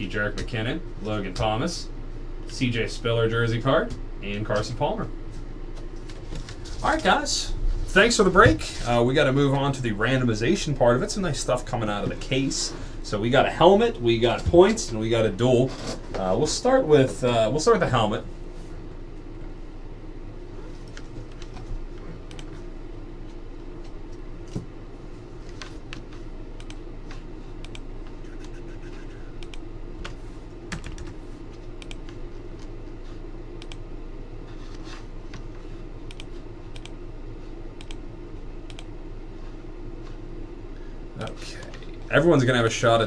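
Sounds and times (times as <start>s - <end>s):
low room hum: 0.0s - 43.0s
keyboard typing: 27.6s - 31.2s.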